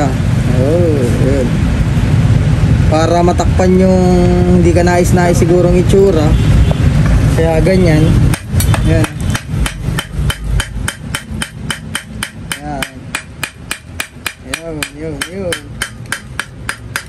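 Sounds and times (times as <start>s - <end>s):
metal-on-metal tapping: 8.3s - 17.0s.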